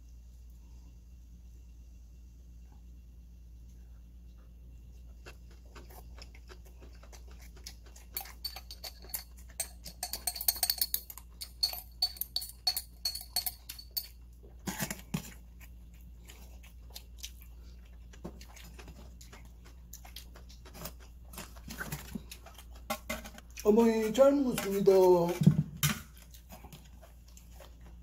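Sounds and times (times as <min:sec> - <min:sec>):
spoon scraping and clinking in jar: 0:07.1 - 0:15.3.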